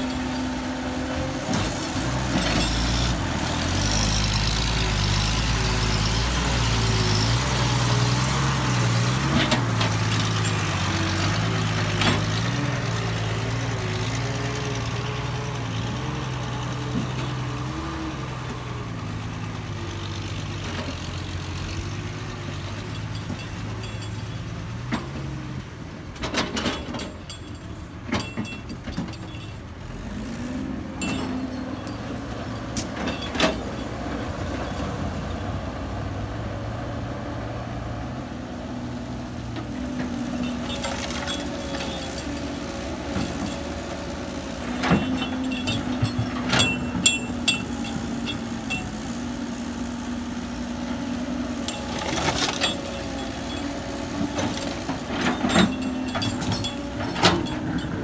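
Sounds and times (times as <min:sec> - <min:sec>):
engine revving: 0:00.0 - 0:23.5
diesel truck engine running: 0:00.0 - 0:58.0
sharp knocks and clanks: 0:26.2 - 0:29.6, 0:44.6 - 0:49.0.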